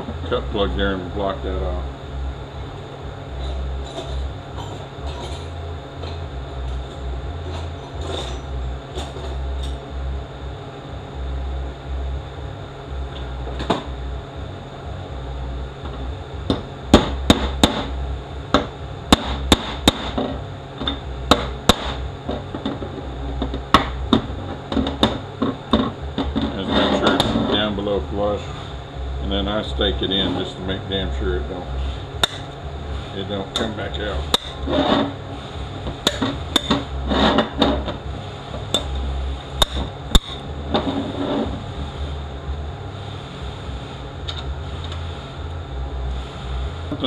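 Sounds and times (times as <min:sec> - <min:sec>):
low shop hum: 0:00.0 - 0:47.0
hammer striking metal: 0:32.2 - 0:32.5.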